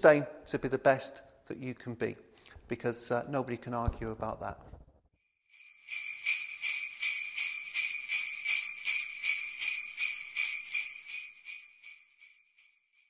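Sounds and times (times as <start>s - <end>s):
jingle bells shaken: 5.5s - 13.0s.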